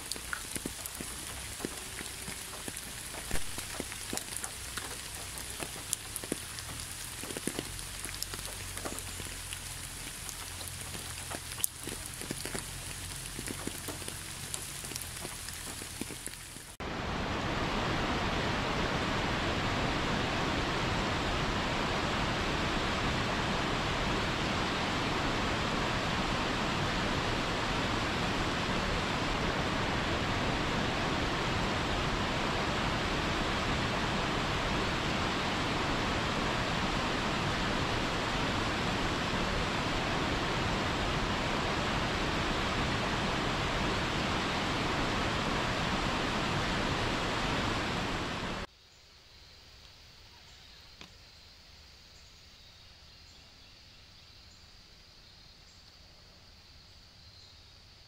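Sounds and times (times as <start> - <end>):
waterfall rushing: 0.0 - 48.7
faint high insect hum: 48.7 - 58.0.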